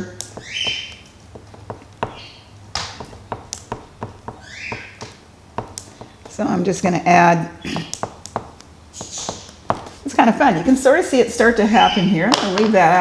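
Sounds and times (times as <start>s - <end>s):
oil pastel tapping on paper: 1.4s - 2.2s, 2.8s - 6.4s, 7.7s - 10.0s
pastel scratching on paper: 9.0s - 10.1s.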